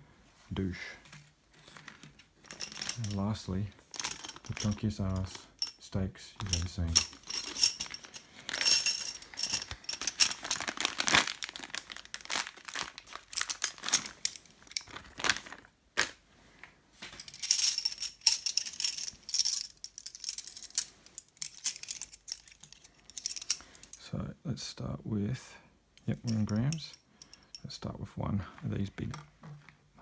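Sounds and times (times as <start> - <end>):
plastic bag crinkling: 6.4 - 16.2
metal tent stakes clinking: 26.0 - 27.7.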